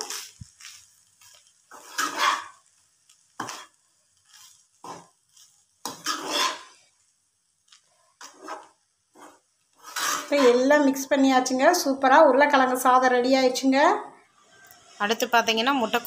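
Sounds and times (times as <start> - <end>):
metal spatula scraping frying pan: 0.0 - 2.7, 3.4 - 6.9, 7.9 - 11.1.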